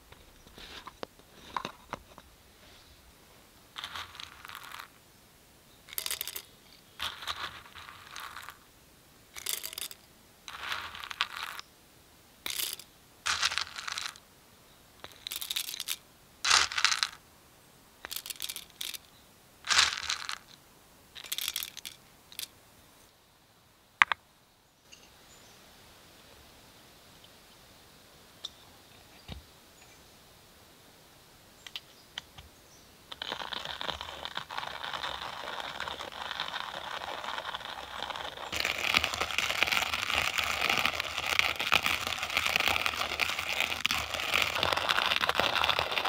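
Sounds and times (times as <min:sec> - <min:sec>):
coffee beans rattling in metal grinder: 0:03.8 - 0:04.9, 0:05.9 - 0:08.6, 0:09.4 - 0:11.6, 0:12.5 - 0:14.2, 0:15.0 - 0:17.2, 0:18.1 - 0:19.0, 0:19.7 - 0:20.5, 0:21.2 - 0:22.5, 0:33.1 - 0:46.0.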